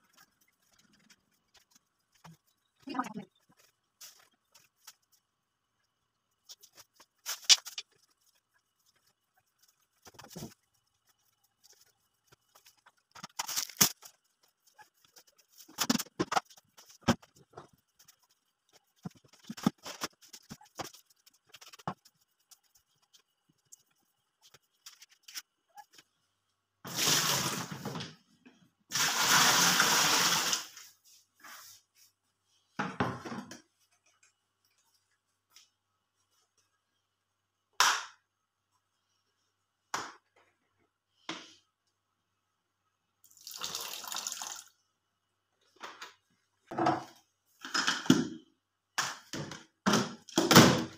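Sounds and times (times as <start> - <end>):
broom sweeping floor: 0.0 - 5.3, 6.4 - 26.1, 26.9 - 28.0, 28.9 - 32.7.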